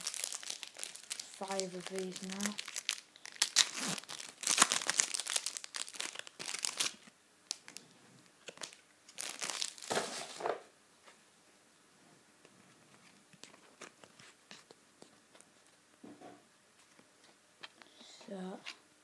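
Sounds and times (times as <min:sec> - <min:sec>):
foil packet crinkling and tearing: 0:00.0 - 0:07.8, 0:08.4 - 0:10.5.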